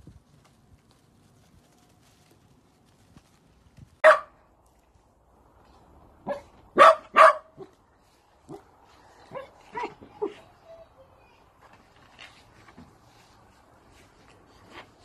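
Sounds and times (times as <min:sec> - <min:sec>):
dog barking: 0:04.0 - 0:04.4, 0:06.2 - 0:07.7, 0:09.3 - 0:10.4.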